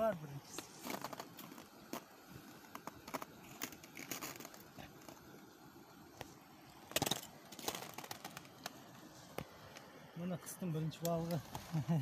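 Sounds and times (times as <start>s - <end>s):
handling rustling and crinkling: 0.5s - 5.2s, 6.2s - 9.9s, 11.0s - 12.0s
small clicks and crackles: 0.5s - 5.5s, 6.2s - 9.9s, 11.0s - 12.0s.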